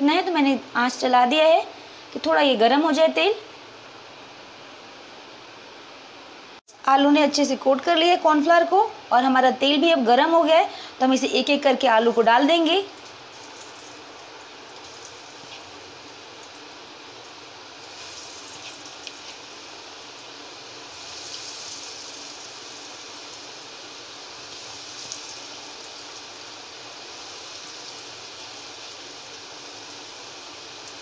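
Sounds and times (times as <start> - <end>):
potatoes sizzling in hot oil: 12.0 - 31.0.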